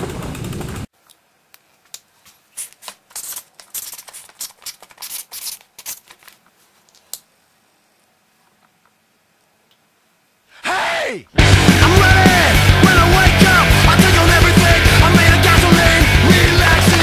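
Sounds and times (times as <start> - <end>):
marker pen scratching on paper: 2.6 - 6.1.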